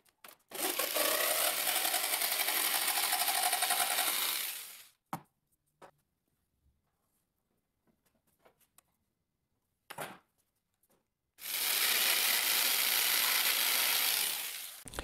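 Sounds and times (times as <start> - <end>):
jigsaw cutting plastic pipe: 0.5 - 5.0, 11.4 - 15.0.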